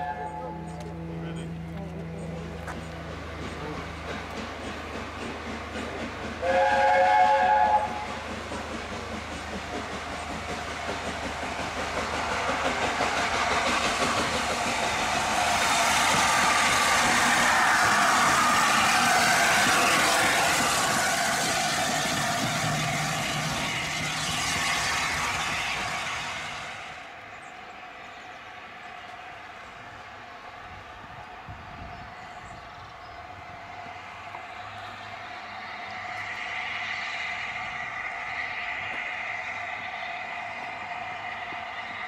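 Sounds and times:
steam locomotive chime whistle: 0:00.0 - 0:01.5, 0:06.4 - 0:08.2
train running past: 0:00.0 - 0:42.0.

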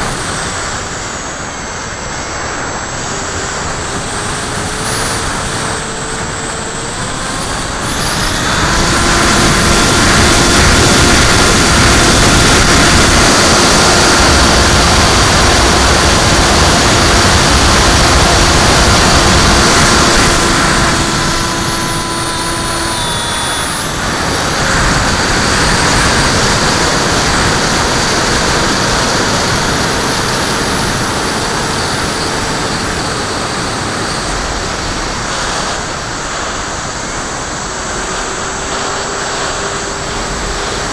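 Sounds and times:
model plane motor whine: 0:00.0 - 0:40.9
wind rush: 0:00.0 - 0:40.9.

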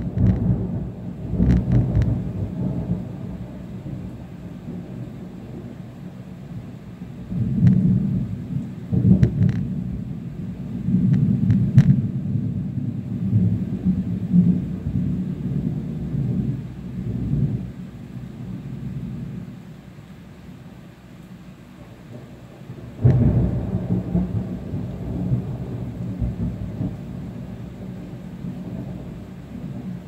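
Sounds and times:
sharp thunder cracks: 0:00.0 - 0:05.7, 0:07.3 - 0:10.0, 0:22.1 - 0:30.0
thunder rolling: 0:00.0 - 0:17.8, 0:22.1 - 0:30.0.

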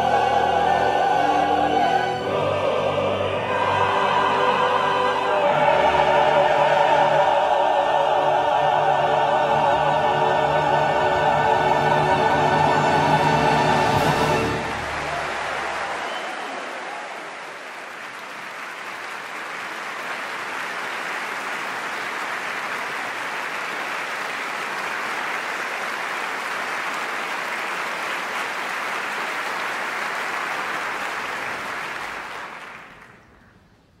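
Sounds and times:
audience applauding: 0:13.4 - 0:33.5.

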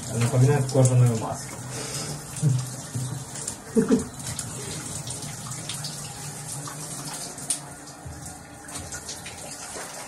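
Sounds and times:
shower water spraying: 0:00.0 - 0:10.0.

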